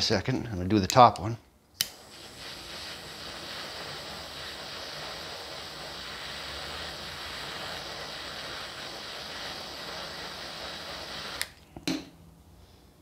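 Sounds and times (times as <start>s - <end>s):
butane torch hissing: 1.8s - 11.6s.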